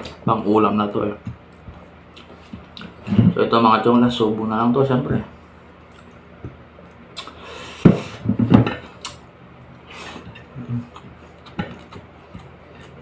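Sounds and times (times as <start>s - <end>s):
close-up chewing: 10.3s - 13.0s.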